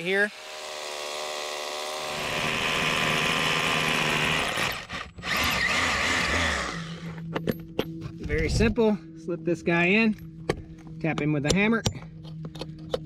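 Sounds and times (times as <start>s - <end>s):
power drill boring into concrete: 0.0s - 7.0s.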